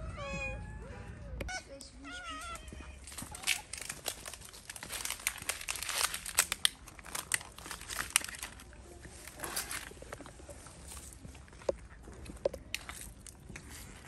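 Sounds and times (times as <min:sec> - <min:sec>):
plastic crinkling and crackling: 0:03.0 - 0:14.0.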